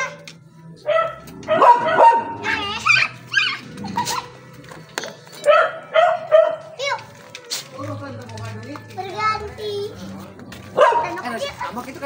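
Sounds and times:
dogs barking and yelping: 0:00.8 - 0:04.6, 0:05.3 - 0:06.8, 0:10.7 - 0:11.9.

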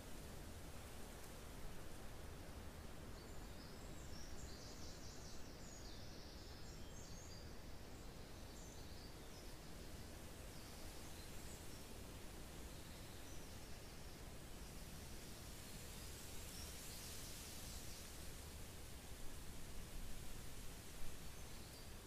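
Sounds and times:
wind hiss: 0:00.0 - 0:22.0.

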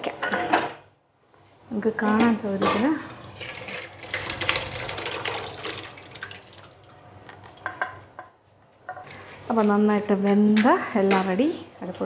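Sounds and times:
thick liquid pouring into a pan: 0:03.2 - 0:07.6.

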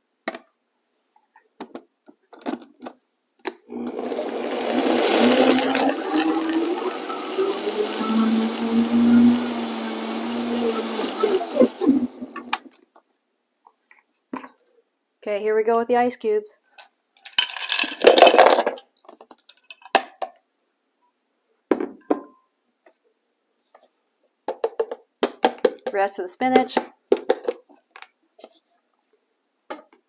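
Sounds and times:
blender running: 0:03.7 - 0:12.6.

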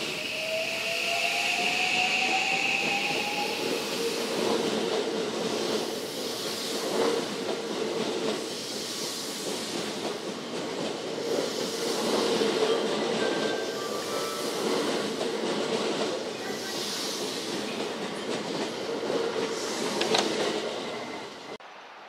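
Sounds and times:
wheels rumbling on rail: 0:00.0 - 0:22.0
rail joints clacking: 0:04.3 - 0:21.5.

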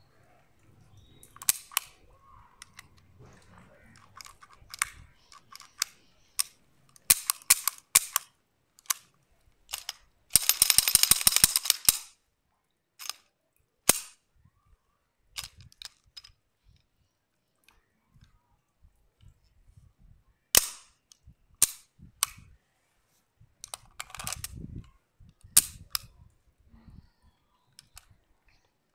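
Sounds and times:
pistol metallic clicks: 0:01.2 - 0:02.0, 0:03.9 - 0:09.1, 0:09.7 - 0:12.2, 0:13.0 - 0:13.2, 0:13.9 - 0:14.2, 0:20.5 - 0:21.0, 0:21.6 - 0:22.4, 0:25.6 - 0:26.1.

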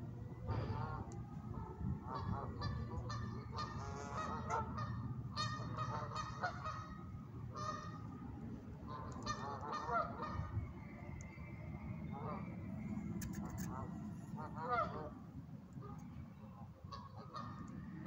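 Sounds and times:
geese honking: 0:00.7 - 0:08.2, 0:08.9 - 0:10.6, 0:13.6 - 0:15.2, 0:16.8 - 0:17.8.

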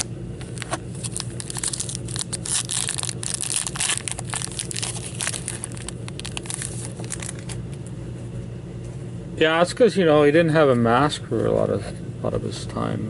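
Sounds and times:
plastic wrapping crinkling: 0:00.0 - 0:07.7
steady low hum: 0:00.0 - 0:13.0.

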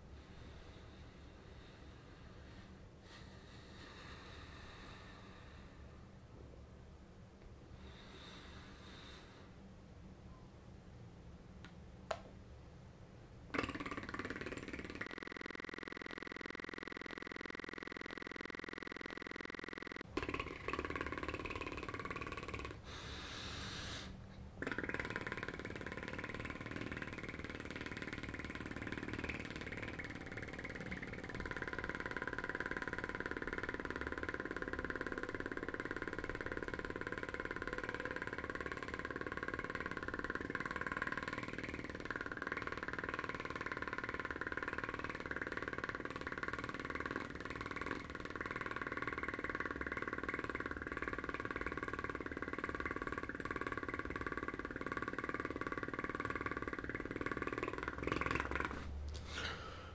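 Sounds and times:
man blowing a raspberry: 0:13.5 - 0:22.8, 0:23.8 - 0:59.7.

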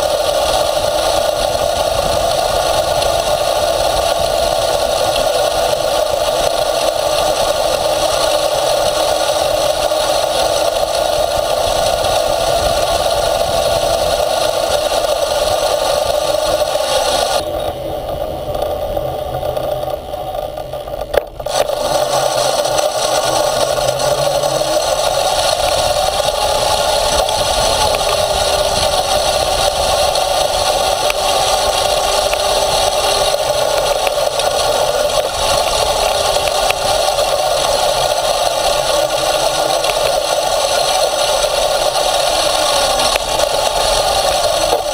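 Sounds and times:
electric skateboard motor whine: 0:00.0 - 0:44.9
wheel noise: 0:00.0 - 0:44.9.

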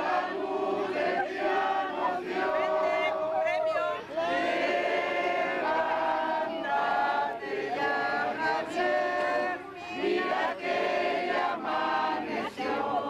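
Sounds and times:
group singing in unison: 0:00.0 - 0:13.0.

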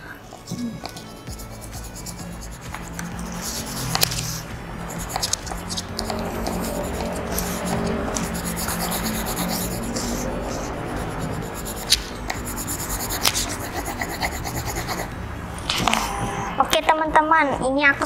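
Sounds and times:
quiet background music: 0:00.0 - 0:18.0
markers scratching on paper: 0:00.4 - 0:15.2.

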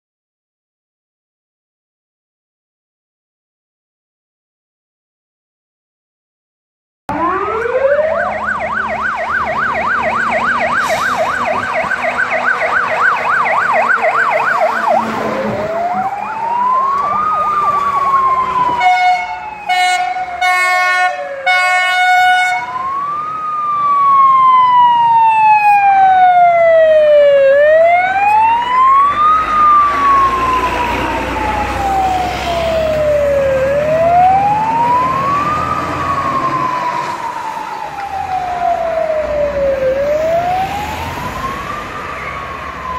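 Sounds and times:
fire engine siren: 0:07.1 - 0:42.9
short horn blasts: 0:18.8 - 0:22.6.

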